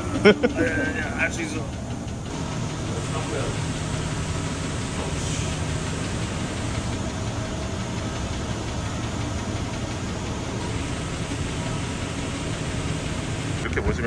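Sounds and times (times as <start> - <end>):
workshop machinery rumble and hiss: 0.0 - 14.0.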